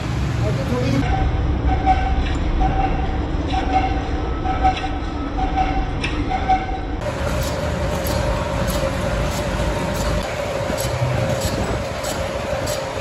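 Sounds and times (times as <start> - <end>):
workshop machinery rumble: 7.0 - 13.0.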